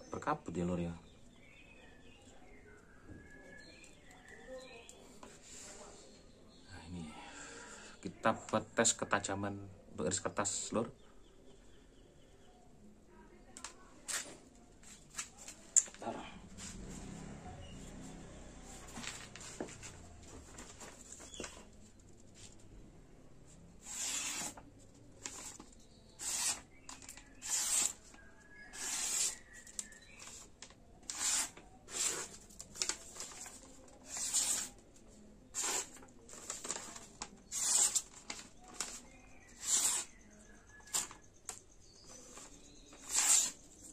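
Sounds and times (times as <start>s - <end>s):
knife slicing paper: 23.8s - 24.6s, 26.2s - 30.4s, 31.0s - 34.8s, 35.5s - 40.1s, 42.3s - 43.7s.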